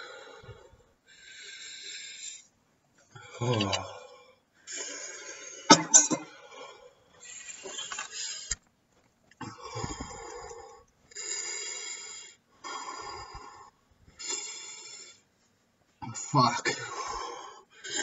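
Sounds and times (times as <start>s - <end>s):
man breathing heavily: 0.0s - 2.5s, 9.4s - 15.3s, 16.7s - 18.0s.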